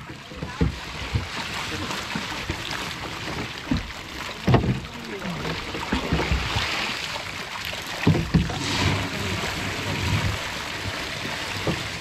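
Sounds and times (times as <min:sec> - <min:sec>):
dull knocks against boat: 0:00.0 - 0:06.7, 0:07.9 - 0:09.3, 0:11.5 - 0:12.0
water splashing and sloshing: 0:00.0 - 0:12.0.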